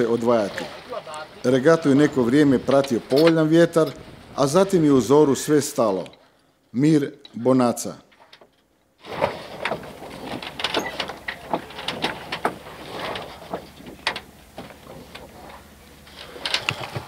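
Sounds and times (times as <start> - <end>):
sailboat rigging knocks and creaks: 1.8 - 4.3, 8.1 - 17.0.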